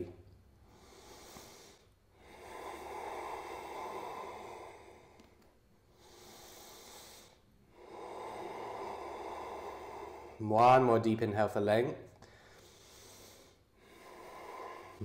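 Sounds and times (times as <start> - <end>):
man breathing deeply: 0.4 - 11.0, 12.2 - 15.0.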